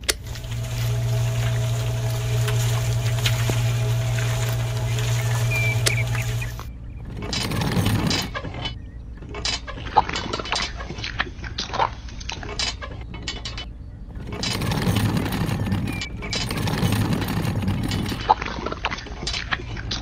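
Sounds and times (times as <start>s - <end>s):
small electric motor humming: 0.0s - 6.7s.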